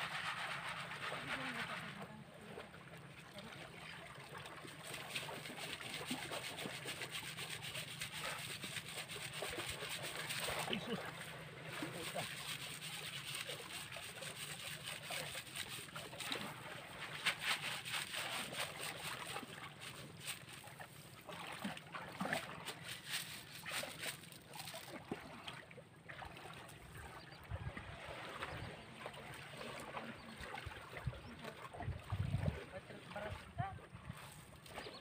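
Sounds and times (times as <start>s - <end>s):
water sloshing and splashing: 0.0s - 35.0s.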